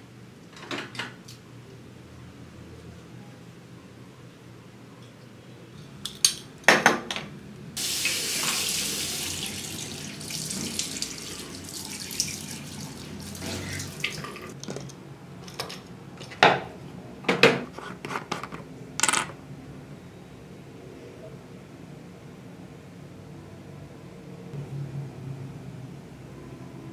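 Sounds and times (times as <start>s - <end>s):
tap water running into sink: 7.8s - 14.6s.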